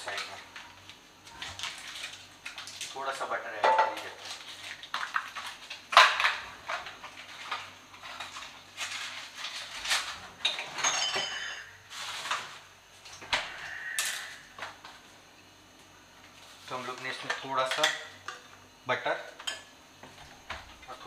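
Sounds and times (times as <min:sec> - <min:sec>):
containers and utensils clinking: 0:03.6 - 0:12.6.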